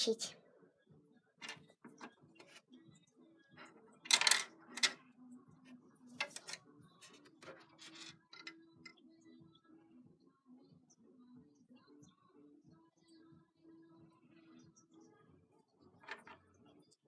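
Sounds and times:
plastic toy pieces clattering: 4.1 - 5.0.

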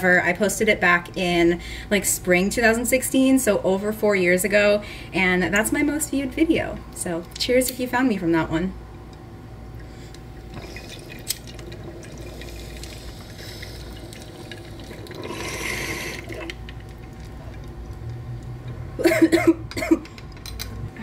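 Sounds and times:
water bubbling in a bong: 9.7 - 18.8.

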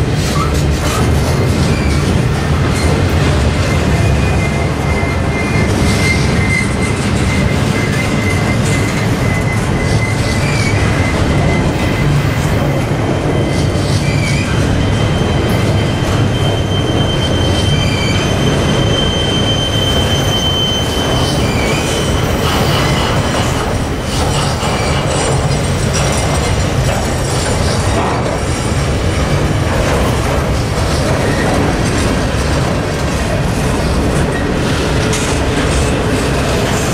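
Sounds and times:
freight train wheels rumbling on rail: 0.0 - 36.9
high wheel squeals: 3.6 - 26.6.

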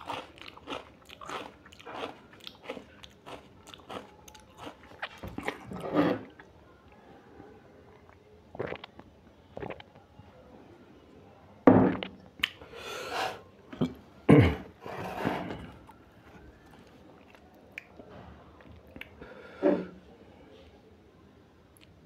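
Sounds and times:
quiet chewing: 0.0 - 7.0, 15.5 - 19.4.

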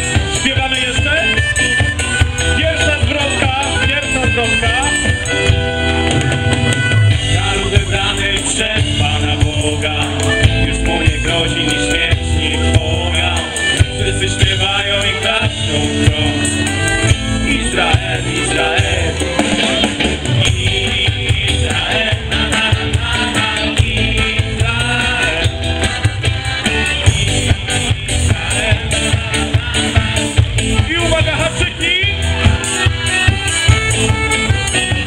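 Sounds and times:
live band with singing: 0.0 - 35.0
pulsing bass beat: 0.0 - 35.0.

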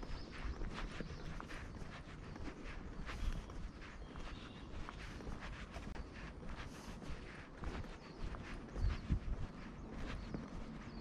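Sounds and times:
footsteps clicking and scuffing: 0.0 - 11.0.

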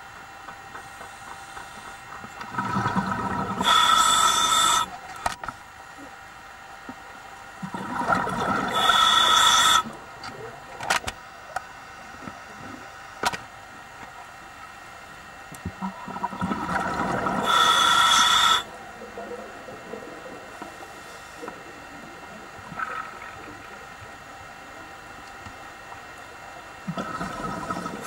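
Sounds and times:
diver breathing through regulator: 2.6 - 5.0, 8.5 - 9.9, 17.2 - 18.7.

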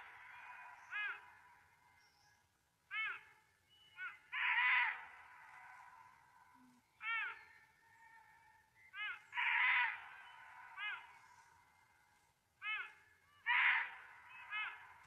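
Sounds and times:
harsh rasping animal call: 12.6 - 15.0.

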